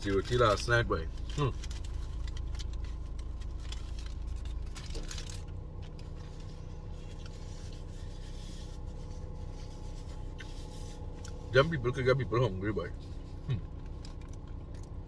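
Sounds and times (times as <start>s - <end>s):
steady low hum: 0.0s - 15.0s
paper napkin rustling: 1.3s - 11.5s.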